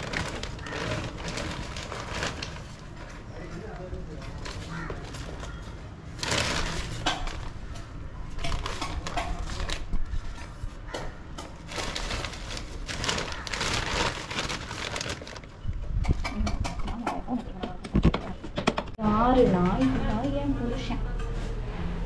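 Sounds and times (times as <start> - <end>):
plastic bag crinkling: 0.0 - 7.7, 11.6 - 15.7.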